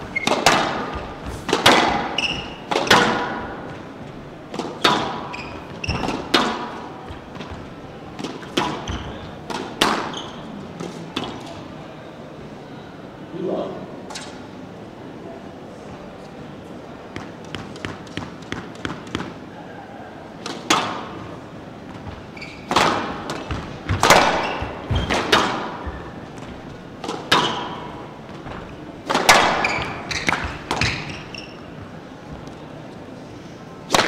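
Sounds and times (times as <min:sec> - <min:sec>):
shoes squeaking on wooden floor: 0:00.0 - 0:02.7, 0:04.8 - 0:06.4, 0:08.7 - 0:09.4, 0:10.0 - 0:10.6, 0:21.8 - 0:28.0, 0:29.6 - 0:32.5
ball hitting walls: 0:00.0 - 0:11.6, 0:20.4 - 0:32.6
racket smacking ball: 0:00.1 - 0:03.9, 0:04.5 - 0:10.2, 0:20.4 - 0:21.2, 0:21.9 - 0:32.5.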